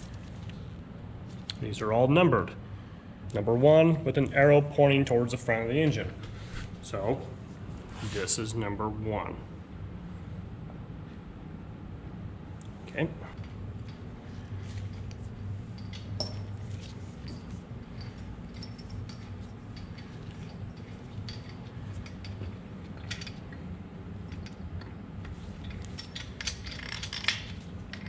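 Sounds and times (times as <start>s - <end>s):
steady low hum: 0.0s - 28.0s
metallic clinks of engine parts: 13.3s - 23.7s, 25.6s - 28.0s.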